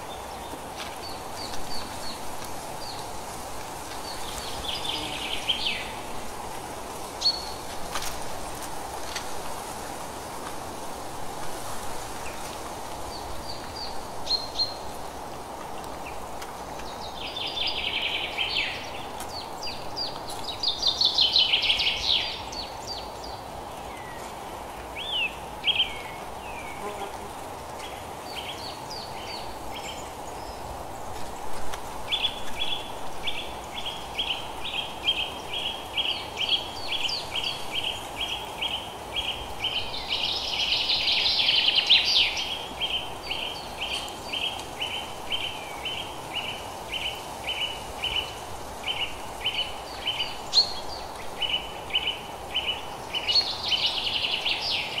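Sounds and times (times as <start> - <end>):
faint background noise: 0.0 - 55.0.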